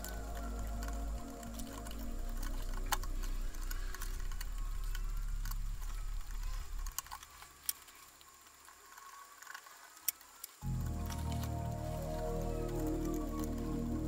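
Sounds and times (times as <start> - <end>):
background music: 0.0 - 7.2, 10.6 - 14.0.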